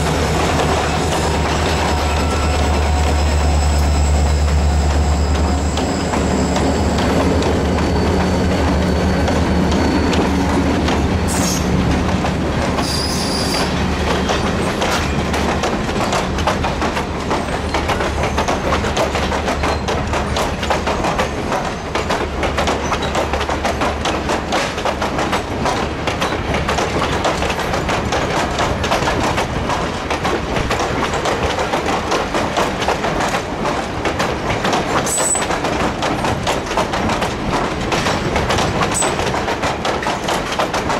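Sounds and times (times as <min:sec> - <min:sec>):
diesel locomotive engine droning: 0:00.0 - 0:22.5
steel wheels clattering over rails: 0:00.0 - 0:40.9
high wheel squeals: 0:00.9 - 0:11.7, 0:12.8 - 0:13.8.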